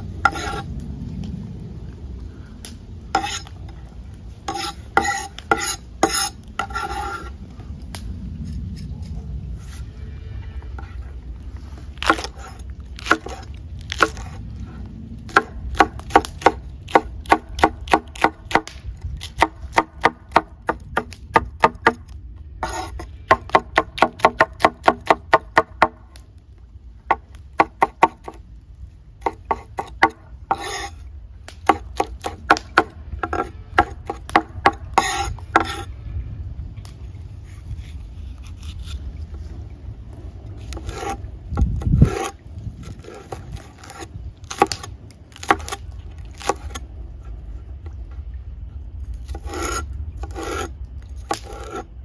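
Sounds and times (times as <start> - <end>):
low rumble: 0.0 - 17.2, 32.8 - 49.3.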